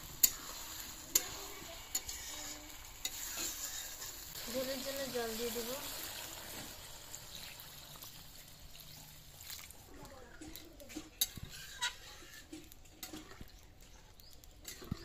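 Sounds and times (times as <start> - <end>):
metal ladle scraping pan: 0.1 - 5.6, 10.4 - 13.8, 14.6 - 15.0
water splashing into pan: 4.4 - 9.9.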